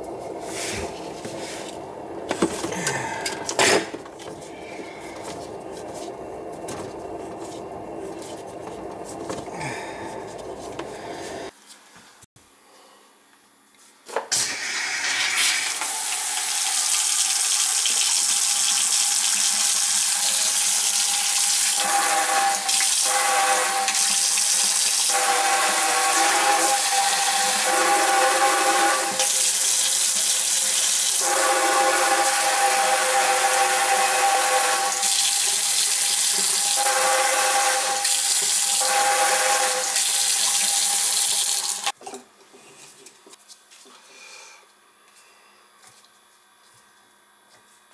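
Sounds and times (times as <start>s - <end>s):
water running into metal sink: 14.7s - 31.4s, 32.0s - 41.9s.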